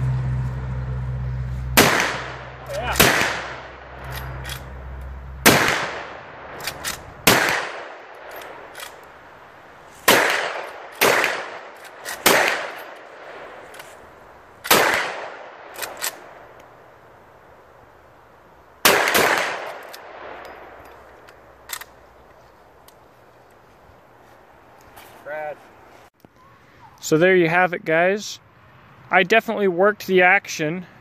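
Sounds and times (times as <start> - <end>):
rifle shots: 1.8 - 4.7, 5.4 - 9.0, 10.0 - 13.7, 14.6 - 16.4, 18.8 - 20.8.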